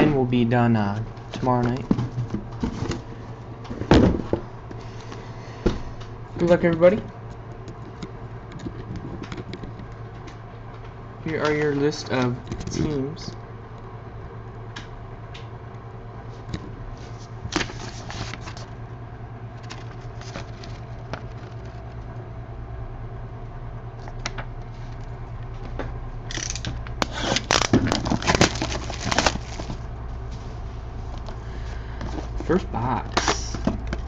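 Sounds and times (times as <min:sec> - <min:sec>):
steady low hum: 0:00.0 - 0:34.0
plastic shrink wrap crackling: 0:26.6 - 0:29.9.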